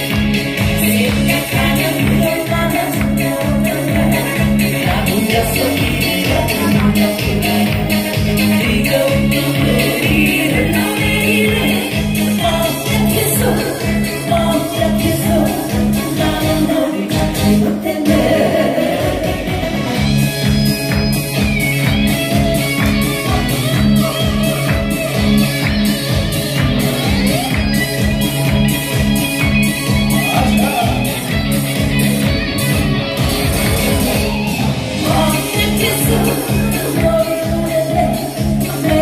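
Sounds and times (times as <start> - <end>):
pop backing track: 0.0 - 39.0
woman singing into microphone: 0.8 - 19.9, 34.3 - 39.0.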